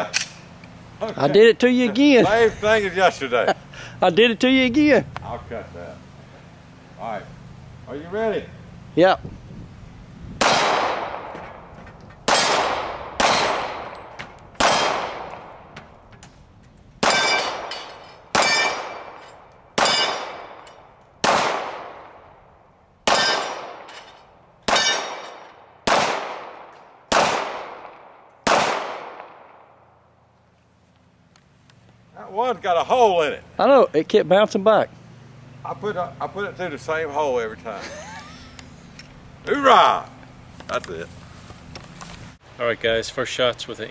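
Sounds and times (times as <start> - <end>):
pistol shots: 10.4 - 11.6, 12.2 - 15.7, 17.0 - 19.2, 19.8 - 20.6, 21.2 - 22.2, 23.0 - 23.9, 24.7 - 29.7
steel plate ringing when hit: 17.1 - 19.0.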